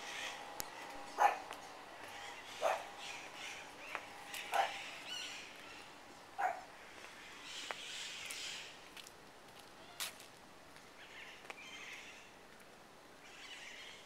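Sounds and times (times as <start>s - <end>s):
dog barking: 1.2s - 1.5s, 2.6s - 2.9s, 4.5s - 4.8s, 6.4s - 6.7s.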